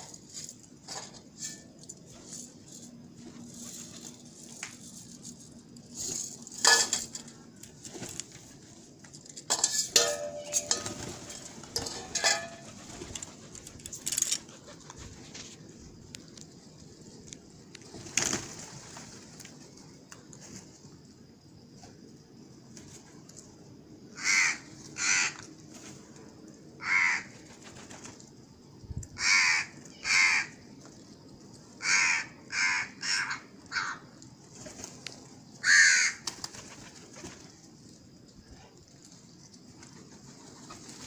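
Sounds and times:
wing flutters: 0:00.0 - 0:08.8, 0:10.6 - 0:15.8, 0:17.8 - 0:20.8, 0:27.0 - 0:28.4, 0:34.4 - 0:37.7.

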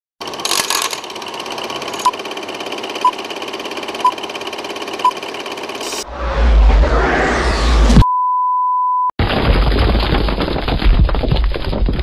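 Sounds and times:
film projector clattering: 0:00.2 - 0:05.9
short beeps: 0:08.0 - 0:09.1.

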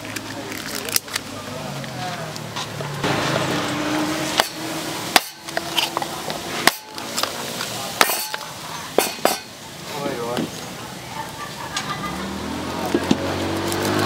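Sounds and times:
faint background voices: 0:00.0 - 0:14.0
sharp knocks: 0:04.4 - 0:05.6.

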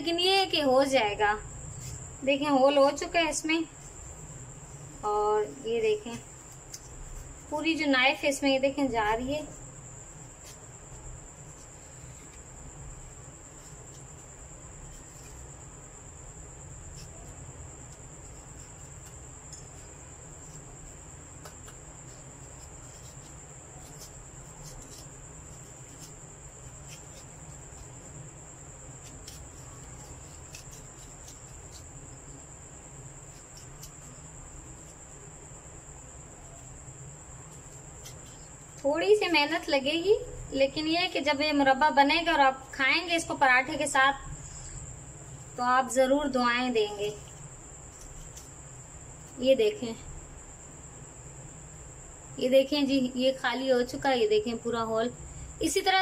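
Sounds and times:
low background hum: 0:00.0 - 0:56.0
knife scraping inside apple: 0:02.9 - 0:15.8, 0:16.7 - 0:35.2, 0:36.4 - 0:41.2, 0:46.3 - 0:49.4.

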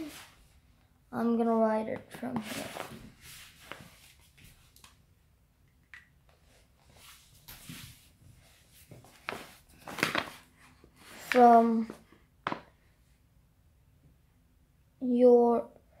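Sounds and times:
paper bag rustling: 0:09.2 - 0:10.5.

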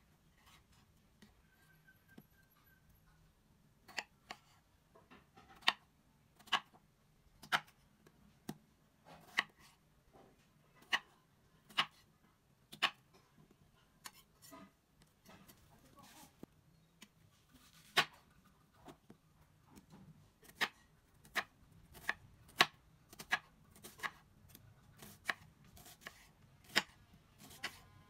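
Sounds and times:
knife cutting potato: 0:03.8 - 0:04.6, 0:05.4 - 0:06.8, 0:07.4 - 0:09.8, 0:10.8 - 0:12.1, 0:12.7 - 0:13.1, 0:14.0 - 0:16.2, 0:17.0 - 0:27.8.

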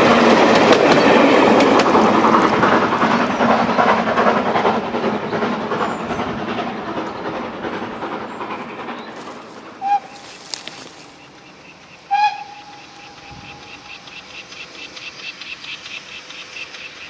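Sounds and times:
faint steam engine exhaust beats: 0:00.0 - 0:17.0
train rumble and rail clatter: 0:00.0 - 0:17.0
steam locomotive whistle: 0:09.8 - 0:10.4, 0:12.0 - 0:14.0.

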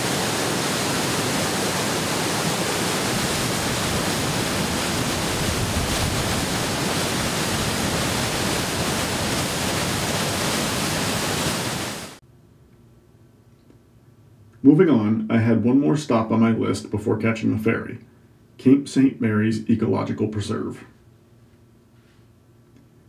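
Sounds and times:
rush of fast-moving water: 0:00.0 - 0:12.2.

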